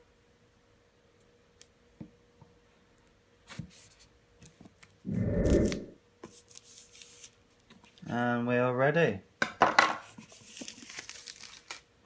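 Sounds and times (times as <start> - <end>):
plastic film crinkling: 10.4 - 11.9.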